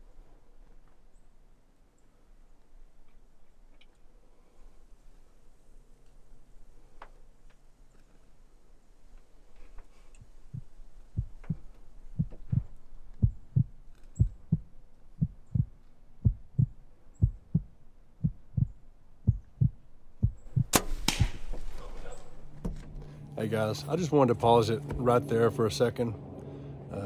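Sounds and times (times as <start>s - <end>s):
heartbeat thumps: 10.5s - 21.5s.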